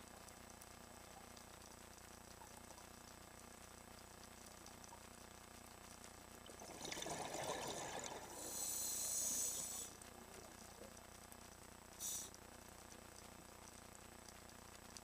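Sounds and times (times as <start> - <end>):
exhaled bubbles burbling: 6.4 - 8.6
regulator inhalation hiss: 8.4 - 10.0, 12.0 - 12.4.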